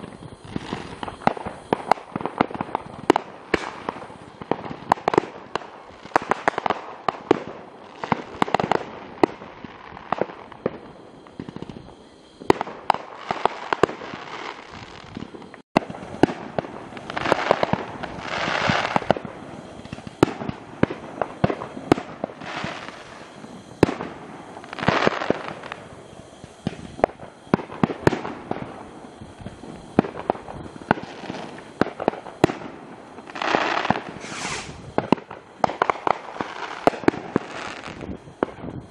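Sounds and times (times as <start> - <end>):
crackling hiss of shells: 0.0 - 38.9
fireworks bangs: 0.0 - 38.9.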